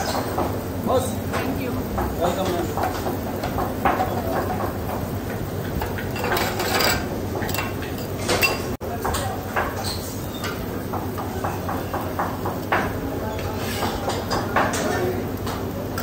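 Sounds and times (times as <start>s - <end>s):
kitchen background noise: 0.0s - 16.0s
metal spatula scraping griddle: 6.1s - 7.1s.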